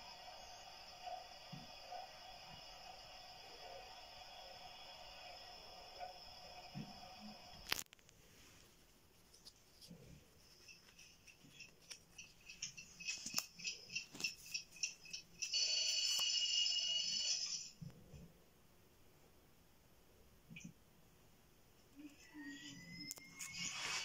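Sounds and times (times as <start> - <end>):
alarm clock bell ringing: 12.2 - 17.8.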